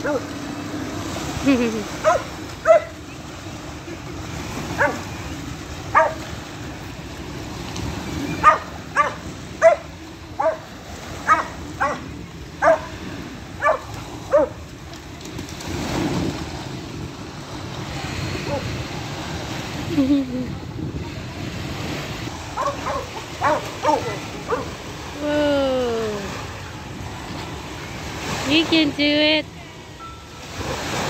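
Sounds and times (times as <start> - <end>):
dog barking: 0.0 - 0.3, 2.0 - 3.0, 4.8 - 5.1, 5.9 - 6.2, 8.4 - 13.0, 13.6 - 14.6, 22.6 - 24.8
small waves breaking on shore: 0.0 - 31.0.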